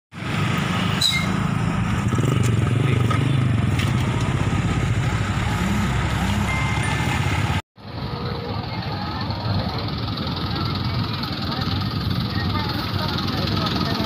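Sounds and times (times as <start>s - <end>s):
vehicle engine running: 0.2s - 14.0s
people talking: 8.1s - 14.0s.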